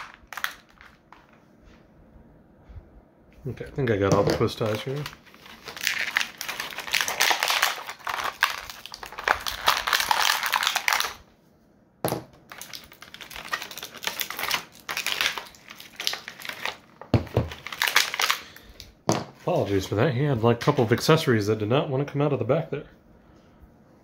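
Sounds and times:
plastic packaging crackling: 0.0 - 1.4, 3.8 - 11.3, 12.4 - 19.0.

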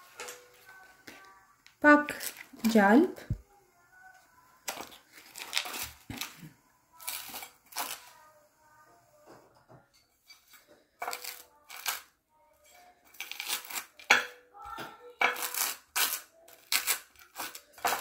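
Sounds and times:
knife scraping butter on toast: 15.3 - 18.0.

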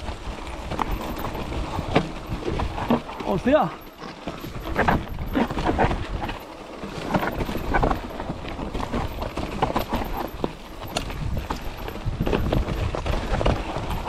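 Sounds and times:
bike clattering over rocks: 0.0 - 14.0.

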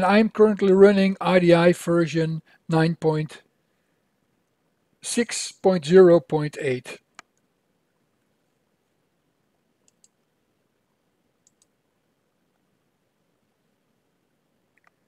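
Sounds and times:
computer mouse clicks: 9.8 - 10.3, 11.4 - 11.8, 14.7 - 15.0.

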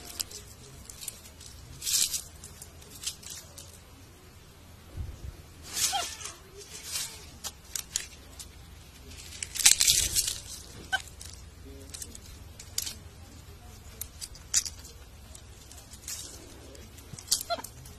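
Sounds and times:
dry leaves crackling in hand: 0.0 - 17.9.

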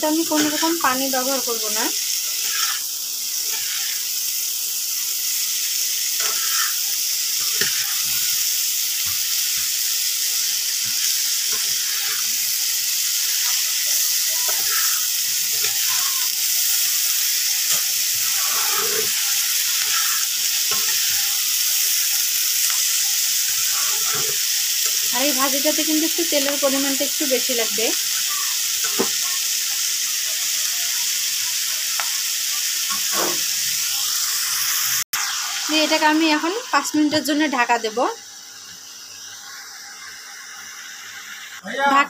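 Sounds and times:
vegetables sizzling in oil: 0.0 - 42.0
spatula scraping and knocking pan: 6.2 - 6.8, 7.4 - 8.3, 17.7 - 21.3, 28.8 - 29.2.

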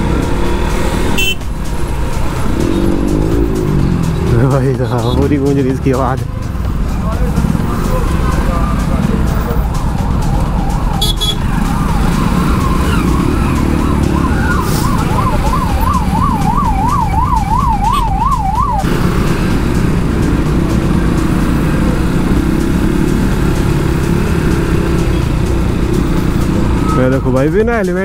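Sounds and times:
motorcycle engines rumbling: 0.0 - 28.0
traffic: 0.0 - 28.0
ambulance siren wailing: 7.6 - 27.5.

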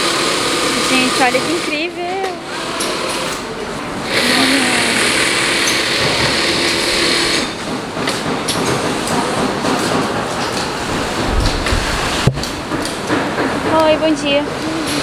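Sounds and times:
sewing machine running: 0.0 - 7.6
background machine noise: 0.0 - 15.0.

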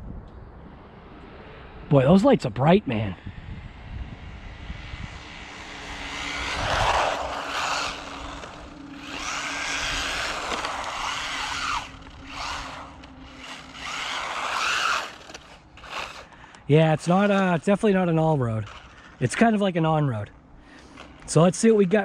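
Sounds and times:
electric motor whine: 3.5 - 17.6, 18.6 - 19.2.

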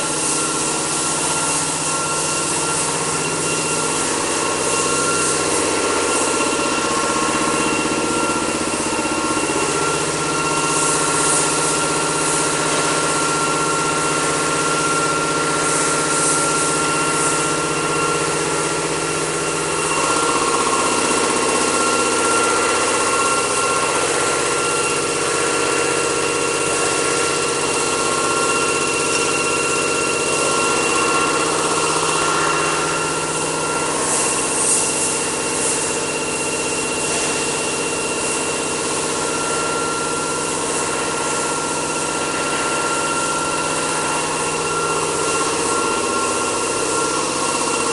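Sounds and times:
machine hum with high whine: 0.0 - 47.9.

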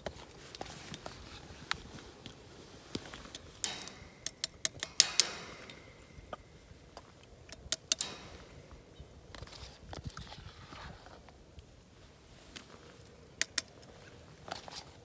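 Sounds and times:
tongs knocking on wire fence: 3.4 - 6.6, 7.5 - 9.0
metal tongs clicking: 3.4 - 9.0.

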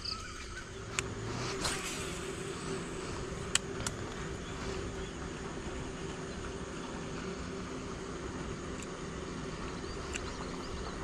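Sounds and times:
low motor-like hum: 0.0 - 11.0
brief swish: 1.3 - 2.4
sharp clicks: 10.0 - 10.6.

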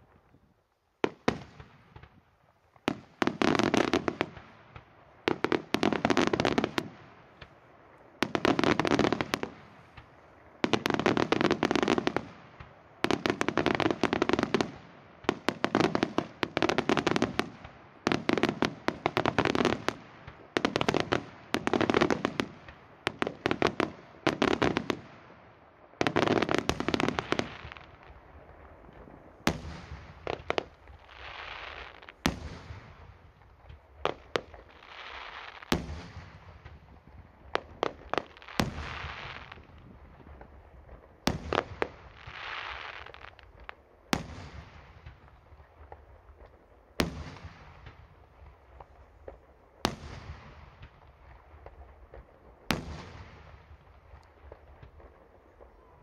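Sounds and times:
fireworks crackling bangs: 1.0 - 25.3, 25.9 - 56.0.

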